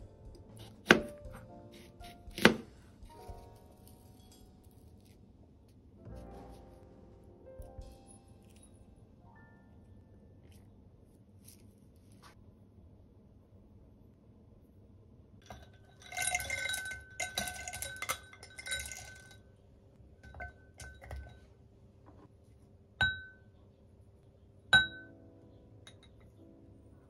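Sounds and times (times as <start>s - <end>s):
nuts rattling in glass bowl: 15.5s - 19.4s.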